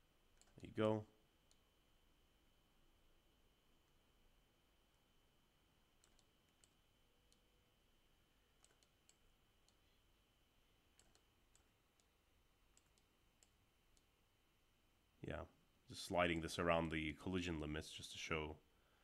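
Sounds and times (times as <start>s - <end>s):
faint high whine: 0.0s - 19.0s
computer mouse clicks: 0.3s - 0.7s, 6.0s - 7.5s, 8.6s - 9.9s, 10.9s - 14.1s.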